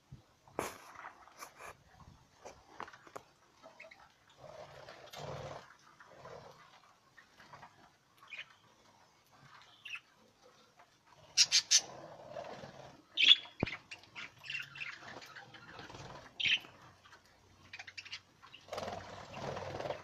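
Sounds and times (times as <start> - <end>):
budgerigars chirping and squawking: 7.2 - 8.7, 9.5 - 10.1, 11.2 - 12.0, 13.1 - 20.0.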